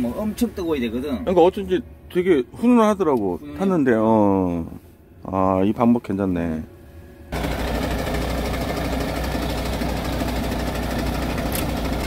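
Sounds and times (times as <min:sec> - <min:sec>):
diesel engine idling: 0:07.3 - 0:12.0.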